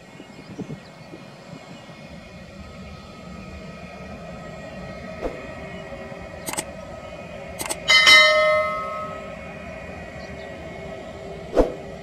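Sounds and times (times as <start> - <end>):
jet engines whining: 0.0 - 12.0
mouse click sound effects: 6.5 - 6.7, 7.6 - 7.8
bright bell chime: 7.9 - 9.4.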